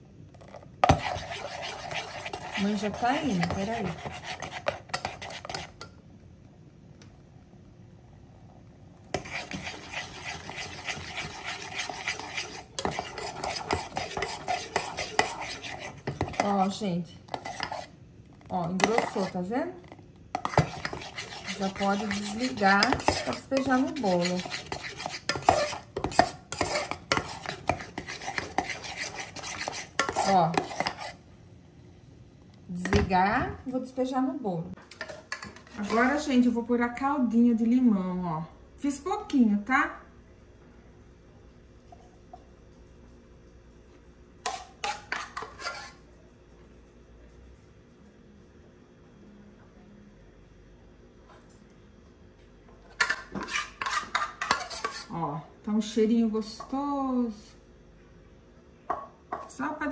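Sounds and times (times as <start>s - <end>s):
whisk scraping a metal pan: 0.5s - 5.9s, 9.1s - 18.0s, 18.7s - 19.5s, 20.4s - 31.2s, 44.4s - 46.0s, 53.0s - 55.2s.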